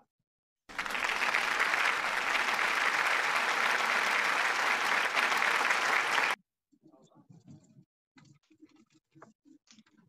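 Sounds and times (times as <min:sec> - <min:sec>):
crowd applause: 0:00.7 - 0:06.4.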